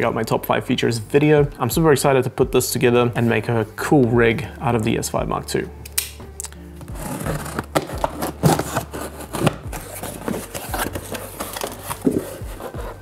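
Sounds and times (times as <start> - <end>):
cardboard flaps pulled open: 6.8 - 13.0
knife slitting packing tape: 7.1 - 12.4.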